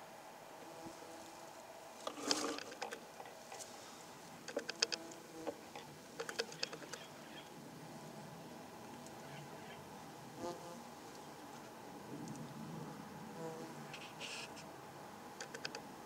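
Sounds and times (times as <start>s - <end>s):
small clicks and ticks: 4.5s - 7.0s, 15.4s - 15.9s.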